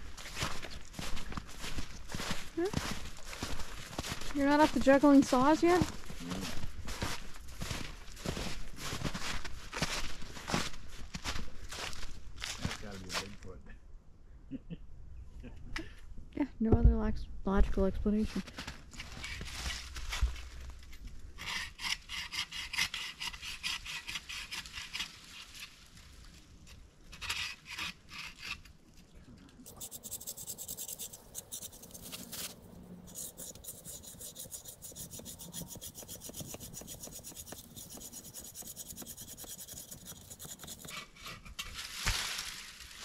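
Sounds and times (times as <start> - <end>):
hand saw cutting wood: 21.4 - 25.7, 27.1 - 28.7, 29.7 - 41.8.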